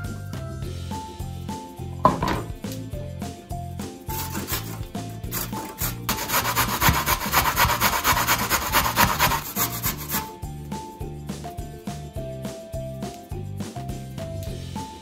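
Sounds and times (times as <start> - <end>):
background music: 0.0 - 15.0
carrot grated on metal grater: 4.2 - 10.3.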